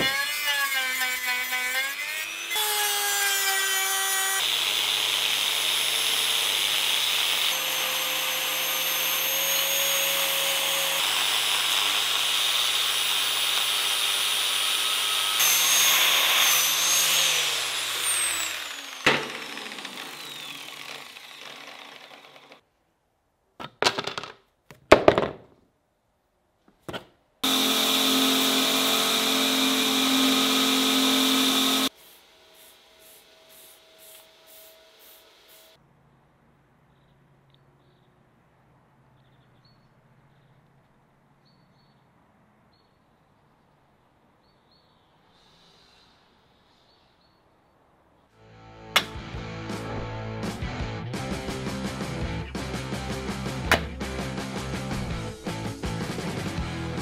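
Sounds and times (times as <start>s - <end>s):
angle grinder grinding steel: 0.0s - 22.6s, 27.4s - 35.8s
belt grinder running: 0.0s - 22.6s, 27.4s - 31.9s
rotary tool whining: 0.0s - 22.6s, 27.4s - 31.9s.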